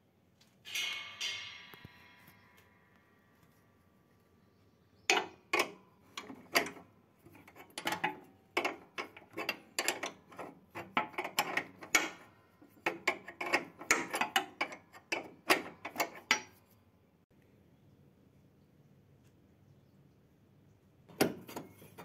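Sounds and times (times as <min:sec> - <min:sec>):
spanner clicking on metal: 0:05.1 - 0:16.6.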